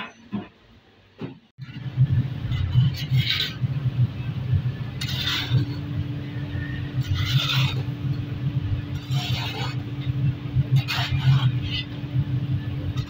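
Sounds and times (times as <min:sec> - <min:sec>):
low machine rumble: 0:01.6 - 0:13.0
shovel scraping sand and metal: 0:02.5 - 0:03.7, 0:05.0 - 0:12.0.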